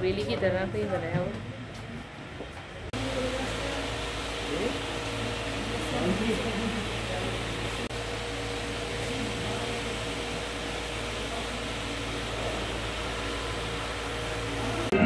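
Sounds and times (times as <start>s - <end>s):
low hum: 3.0s - 15.0s.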